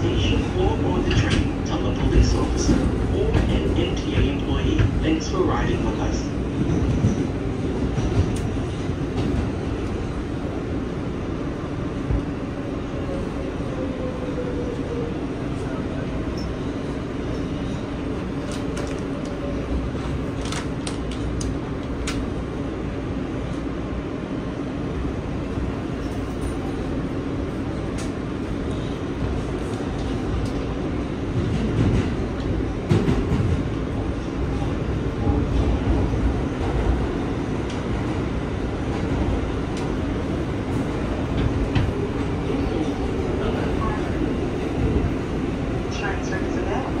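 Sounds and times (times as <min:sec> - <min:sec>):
subway train rumbling in tunnel: 0:00.0 - 0:47.0.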